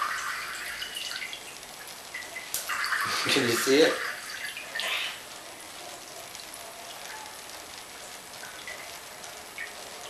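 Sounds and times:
water drip plinks: 0:00.0 - 0:05.4, 0:08.3 - 0:10.0
water pattering into cans: 0:00.0 - 0:05.4.

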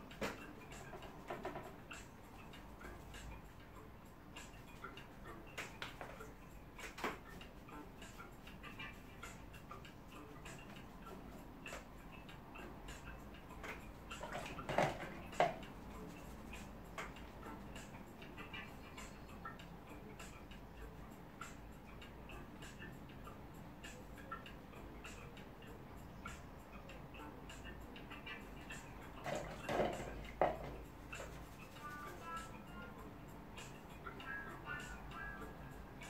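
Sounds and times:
brush strokes on paper: 0:31.0 - 0:32.2.

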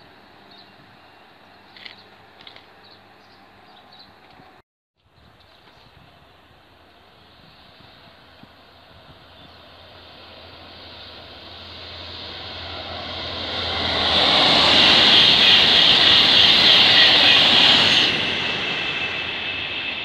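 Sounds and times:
high-speed train passing: 0:06.0 - 0:20.0.

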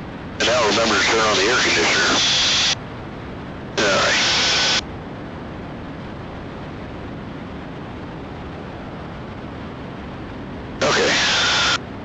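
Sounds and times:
intercom hiss burst: 0:00.4 - 0:02.8, 0:03.8 - 0:04.8, 0:10.8 - 0:11.8.

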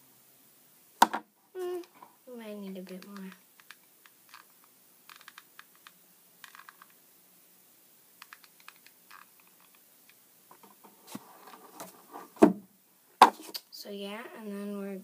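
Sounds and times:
glue gun clicks and taps: 0:08.2 - 0:09.0
handling noise: 0:13.2 - 0:13.6.

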